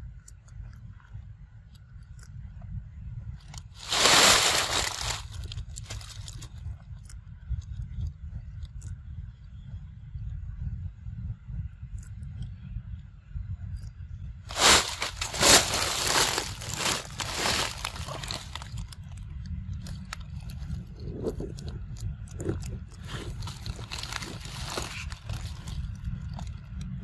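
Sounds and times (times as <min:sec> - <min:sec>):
steady low rumble: 0:00.0 - 0:27.0
crackling and rustling at microphone: 0:03.4 - 0:09.0, 0:14.5 - 0:27.0.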